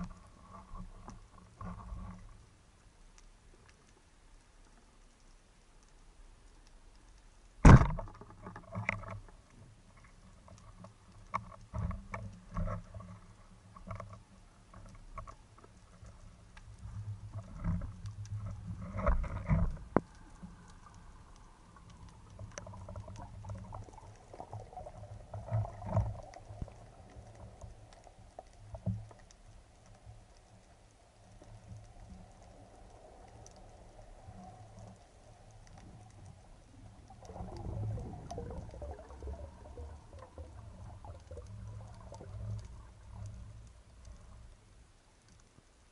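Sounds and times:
speargun firing crack underwater: 7.6s - 8.2s.

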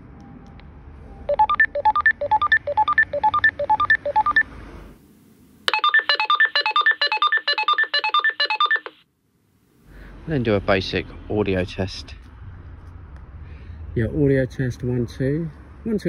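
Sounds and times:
walkie-talkie call tone beeps: 5.7s - 9.0s.

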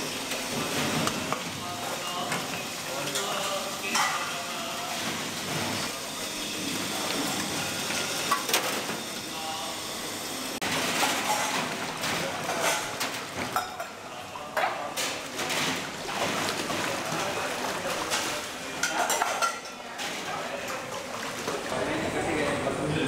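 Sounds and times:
water splashing in sink: 10.6s - 13.9s, 14.8s - 21.8s
metal dishes clinking: 11.0s - 14.0s, 18.1s - 19.9s.

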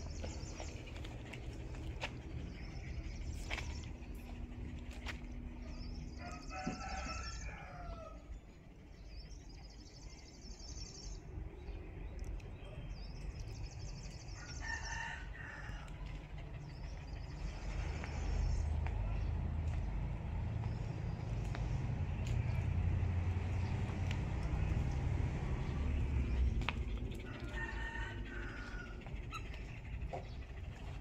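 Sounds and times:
rooster crowing: 6.2s - 8.3s, 14.4s - 15.9s, 27.3s - 29.1s.

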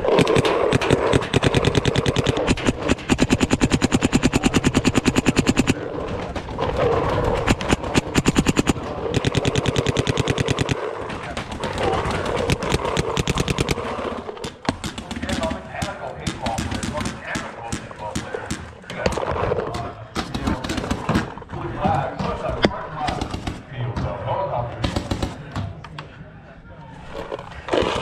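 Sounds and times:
paintball markers firing rapidly: 0.0s - 6.3s, 7.0s - 19.4s, 23.0s - 23.7s, 24.8s - 25.5s.

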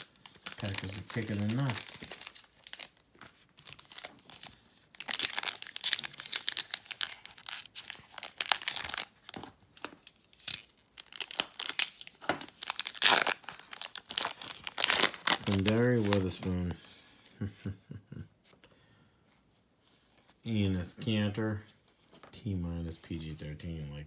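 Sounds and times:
foil wrapper tearing and crinkling: 0.0s - 3.0s, 3.6s - 16.6s.

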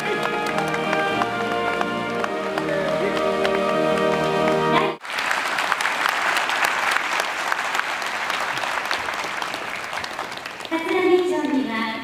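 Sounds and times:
background music: 0.0s - 5.0s
audience applauding: 0.0s - 11.6s.

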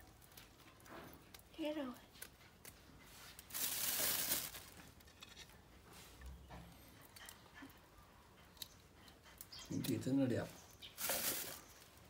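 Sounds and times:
rustling scrape: 3.1s - 6.2s, 10.9s - 11.9s.

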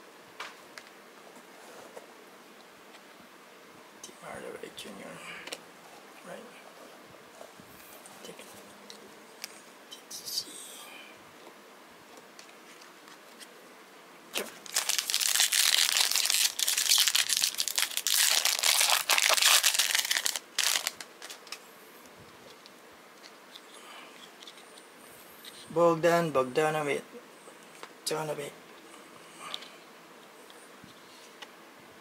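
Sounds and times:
plastic wrapper crinkling and tearing: 14.3s - 21.6s.

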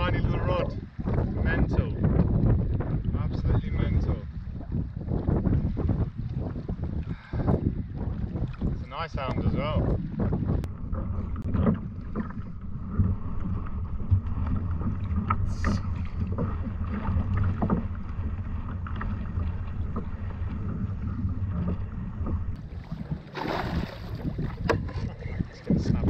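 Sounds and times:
water slapping against hull: 0.0s - 26.0s
wind buffeting microphone: 0.0s - 26.0s
loud water splash: 22.7s - 24.6s.

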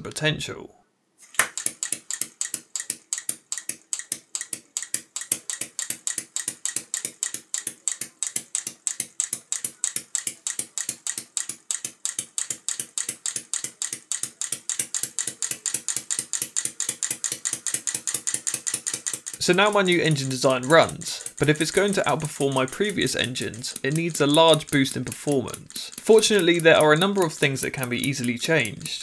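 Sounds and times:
air engine clicking puffs: 14.2s - 29.0s.

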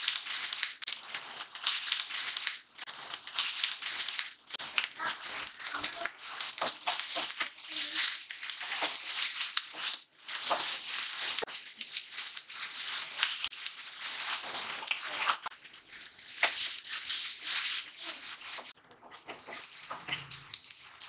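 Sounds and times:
vegetables sizzling in a pan: 0.0s - 21.0s
wooden spatula scraping a pan: 4.5s - 21.0s.

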